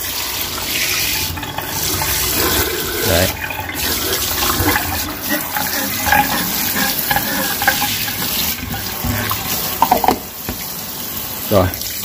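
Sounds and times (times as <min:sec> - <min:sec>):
scouring pad scrubbing metal: 0:01.6 - 0:10.7
faucet spray into metal sink: 0:05.6 - 0:10.7.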